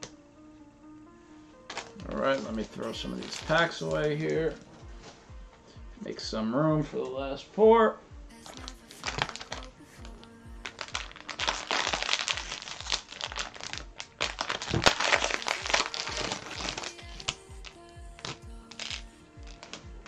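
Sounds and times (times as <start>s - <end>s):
background music with steady beat: 0.0s - 20.0s
cellophane wrappers crinkling: 1.7s - 4.7s, 8.4s - 20.0s.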